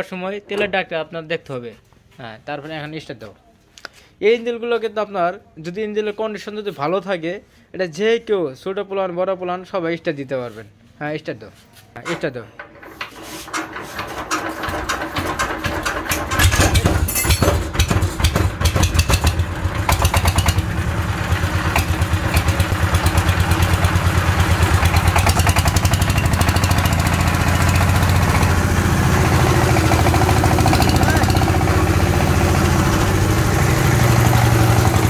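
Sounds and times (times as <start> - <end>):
diesel engine cranking: 12.6 - 35.0
diesel engine running: 17.5 - 35.0.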